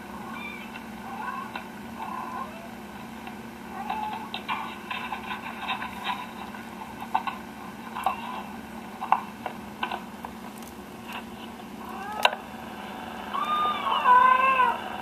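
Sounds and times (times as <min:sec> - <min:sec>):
cat chirping: 0:00.1 - 0:02.8, 0:03.7 - 0:04.4, 0:11.8 - 0:12.4, 0:13.3 - 0:14.8
cat meowing: 0:00.2 - 0:02.8, 0:03.7 - 0:04.4, 0:11.8 - 0:12.4, 0:13.3 - 0:14.9.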